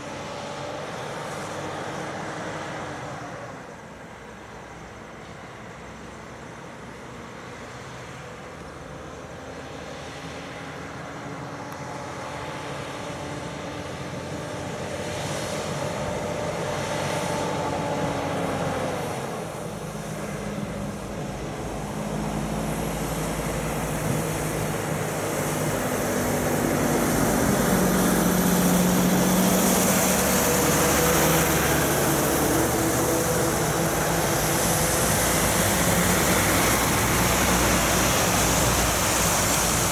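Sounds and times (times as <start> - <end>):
diesel truck engines: 0.0 - 39.9
tyre noise on wet road: 0.1 - 39.9.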